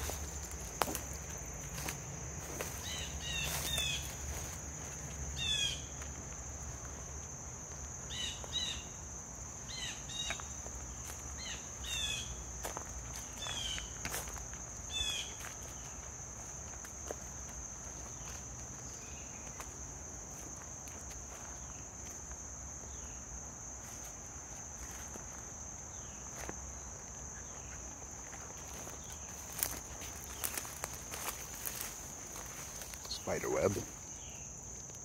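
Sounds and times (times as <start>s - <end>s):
footfalls on leaf litter: 0.0s - 5.2s, 28.3s - 34.2s
insects trilling: 0.0s - 35.0s.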